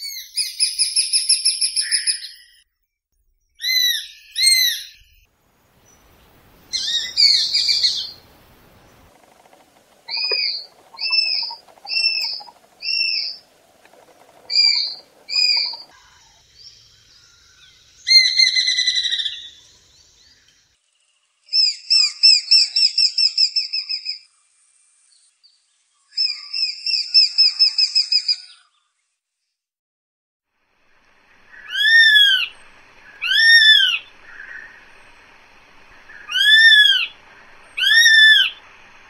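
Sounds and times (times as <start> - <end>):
bird whistled calls: 0.0 - 2.5, 6.7 - 8.3, 10.1 - 16.3, 31.5 - 35.2, 35.9 - 38.8
bird chattering calls: 6.6 - 16.4, 31.2 - 39.0.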